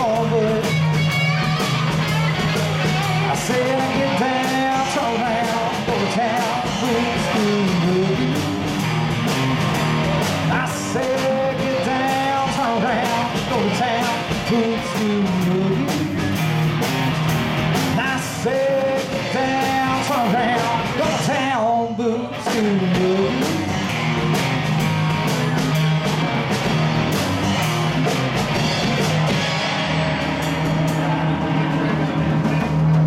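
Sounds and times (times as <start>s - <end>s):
guitar lead line bending: 0.0s - 33.0s
live country band: 0.0s - 33.0s.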